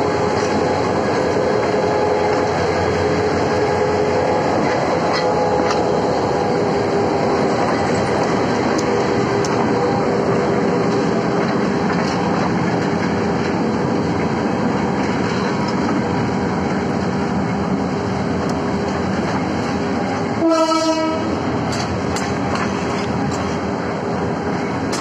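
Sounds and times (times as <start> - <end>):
horn blast: 20.4 - 21.3.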